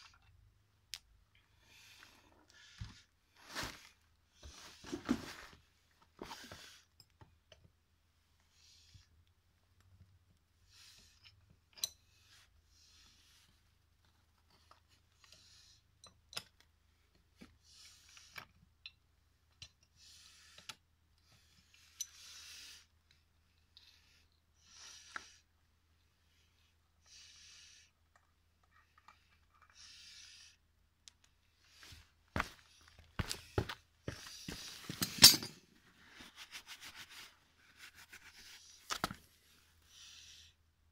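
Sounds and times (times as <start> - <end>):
steel bolts clinking: 35.0 - 35.6.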